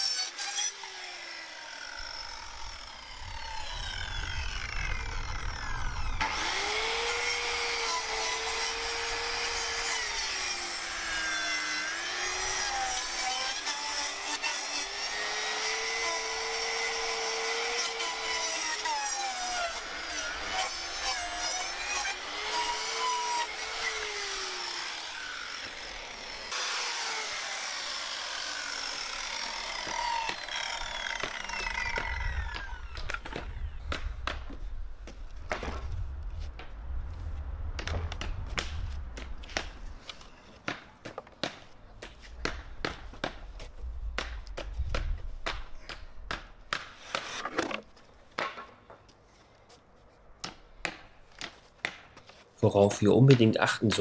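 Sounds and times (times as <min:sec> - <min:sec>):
circular saw cutting wood: 0:00.0 - 0:33.8.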